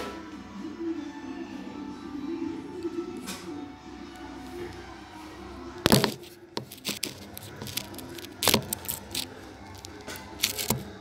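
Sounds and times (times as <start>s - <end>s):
clatter of objects handled: 5.8s - 11.0s.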